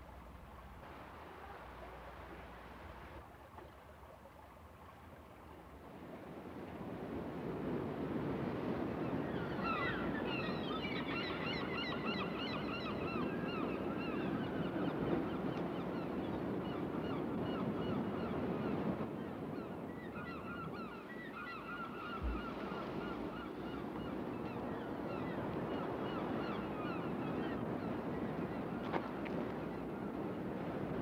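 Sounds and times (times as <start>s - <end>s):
surf breaking against rocks: 22.2s - 24.0s.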